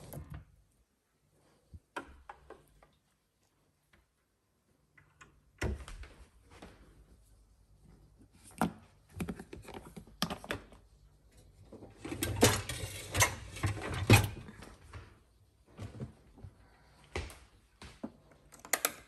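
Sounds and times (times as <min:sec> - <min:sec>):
objects clattering and knocking: 0:11.6 - 0:15.1.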